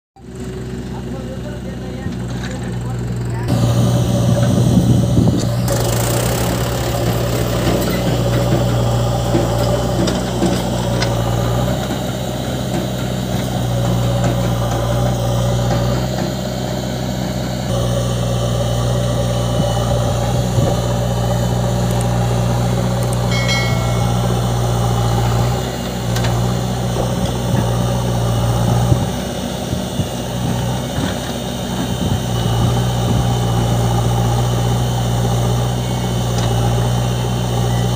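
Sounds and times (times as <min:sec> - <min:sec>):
diesel engine running: 0:00.2 - 0:37.9
brief high tone: 0:23.3 - 0:25.6.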